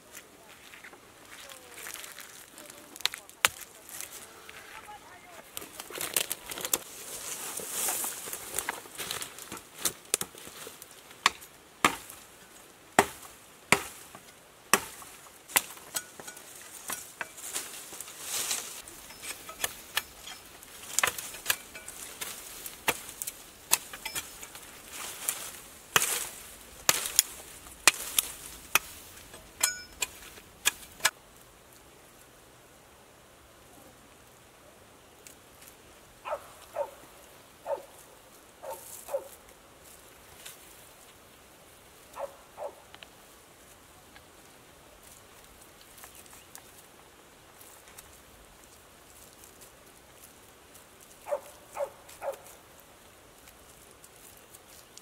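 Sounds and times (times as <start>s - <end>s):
leaves and stems rustling: 0.0s - 32.7s, 33.5s - 55.0s
sickle chopping bamboo: 11.2s - 12.2s, 13.0s - 17.7s, 18.8s - 31.2s.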